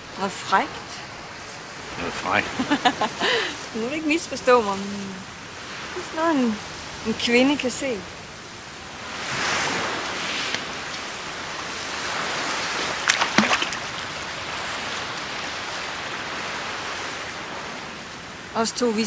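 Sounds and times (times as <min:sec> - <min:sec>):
surf washing onto pebbly beach: 0:07.8 - 0:18.6.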